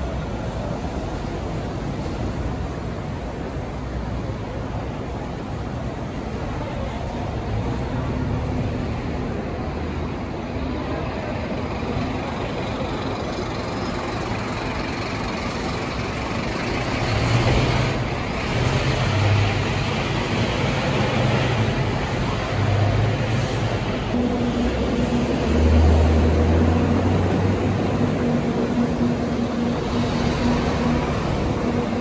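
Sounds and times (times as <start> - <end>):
bus passing and pulling away: 0.0 - 32.0
steady traffic noise: 0.0 - 32.0
deep vehicle engine drone: 11.7 - 32.0.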